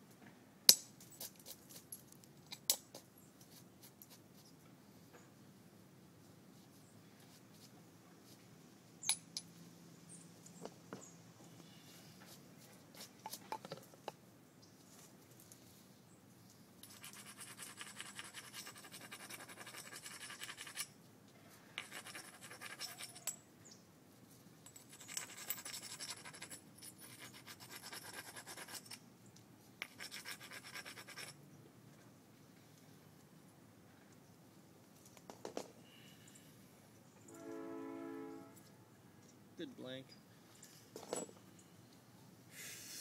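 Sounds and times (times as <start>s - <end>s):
tool scraping stone edge: 24.8s - 29.0s, 29.8s - 31.4s.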